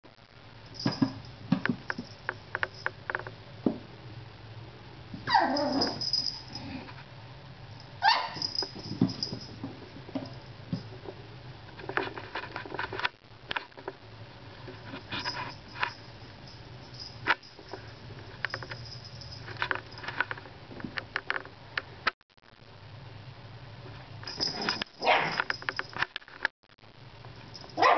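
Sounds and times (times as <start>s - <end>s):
puppy yelps falling in pitch: 5.2s - 6.0s, 8.0s - 8.5s, 25.0s - 25.4s
puppy yipping and barking: 5.3s - 6.0s, 8.0s - 8.5s, 25.0s - 25.4s.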